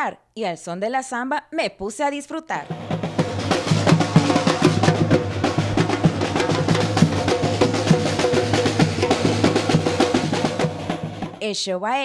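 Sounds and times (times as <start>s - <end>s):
bass drums: 2.6s - 11.4s
snare drums: 2.6s - 11.4s.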